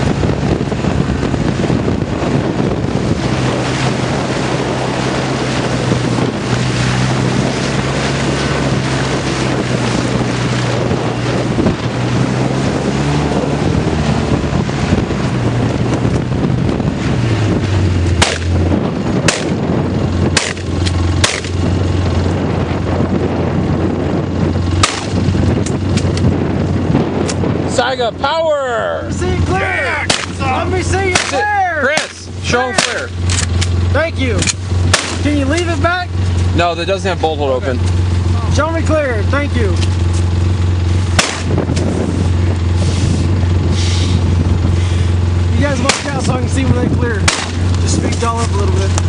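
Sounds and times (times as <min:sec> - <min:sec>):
wind buffeting microphone: 0:00.0 - 0:49.0
shotgun shots: 0:18.2 - 0:18.5, 0:19.3 - 0:19.6, 0:20.4 - 0:21.6, 0:24.8 - 0:25.2, 0:30.1 - 0:30.4, 0:31.1 - 0:31.4, 0:34.9 - 0:35.2, 0:41.2 - 0:41.6, 0:45.8 - 0:46.2, 0:47.2 - 0:47.6.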